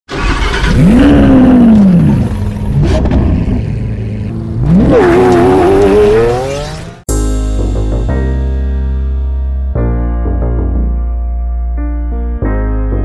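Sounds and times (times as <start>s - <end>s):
car engine revving: 0.1s - 7.1s.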